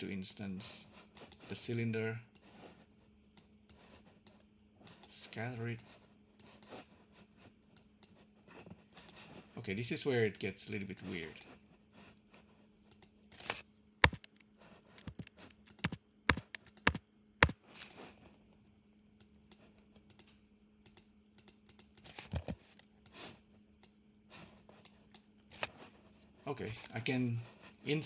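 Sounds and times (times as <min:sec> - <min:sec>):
faint low hum: 0:00.0 - 0:28.0
keyboard typing: 0:14.0 - 0:14.4, 0:15.0 - 0:17.6.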